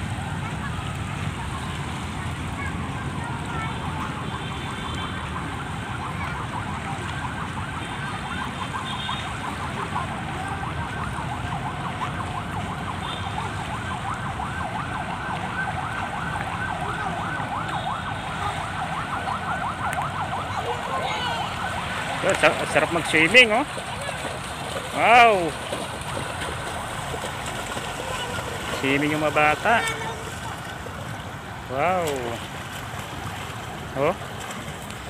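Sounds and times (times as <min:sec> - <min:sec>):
low rumble of wind and water: 0:00.0 - 0:35.0
siren wailing: 0:03.7 - 0:24.2, 0:24.8 - 0:31.0.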